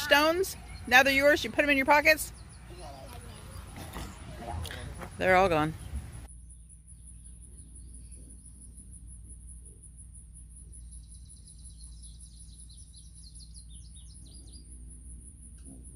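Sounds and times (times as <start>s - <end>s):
faint bird chirping: 0.0s - 15.9s
high insect trill: 5.3s - 15.9s.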